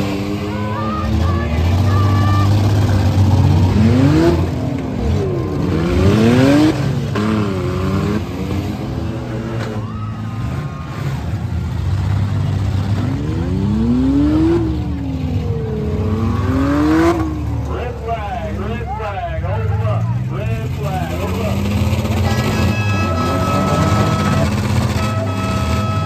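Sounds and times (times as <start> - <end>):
car engines revving hard: 0.0 - 26.0.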